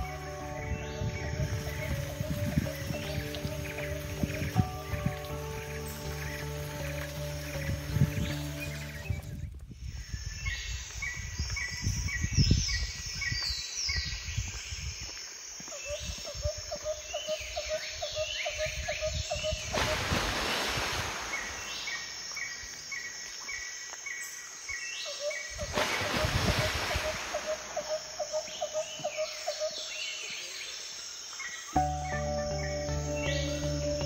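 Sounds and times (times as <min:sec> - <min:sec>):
wind rumble on microphone: 0:00.0 - 0:06.8, 0:07.4 - 0:15.2, 0:15.8 - 0:21.6, 0:25.5 - 0:27.4
birds singing: 0:00.0 - 0:15.1, 0:15.7 - 0:20.1, 0:21.1 - 0:34.0.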